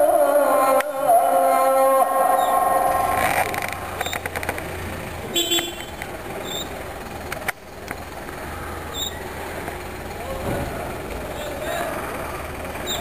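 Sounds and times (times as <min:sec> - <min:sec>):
vehicle traffic: 0:00.0 - 0:13.0.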